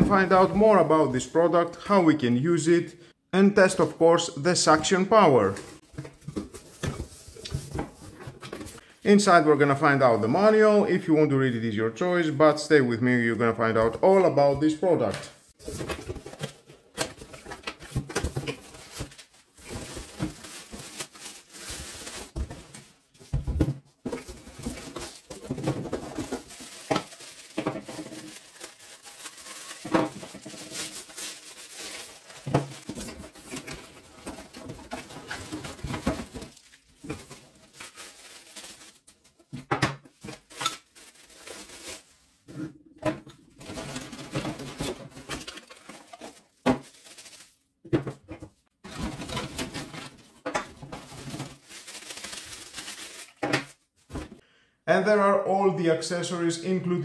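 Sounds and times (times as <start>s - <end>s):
packaging rustling: 15.6s - 23.4s, 24.0s - 39.5s, 40.1s - 42.3s, 43.6s - 47.6s, 48.9s - 53.8s.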